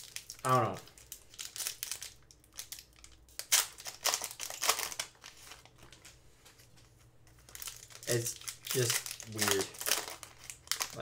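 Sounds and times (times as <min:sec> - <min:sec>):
foil wrappers crinkling: 0:00.0 - 0:06.2, 0:07.3 - 0:11.0
packs tearing open: 0:01.3 - 0:05.6, 0:07.5 - 0:11.0.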